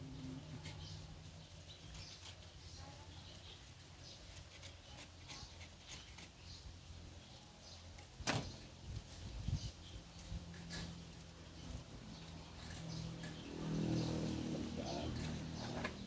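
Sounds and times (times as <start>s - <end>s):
knife scraping coconut husk: 0.1s - 2.9s, 4.1s - 6.7s.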